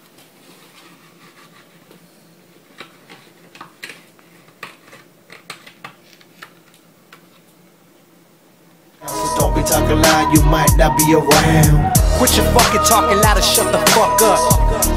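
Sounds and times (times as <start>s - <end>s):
faint steady hum: 0.0s - 11.3s
rubbing scrapes: 0.3s - 5.8s.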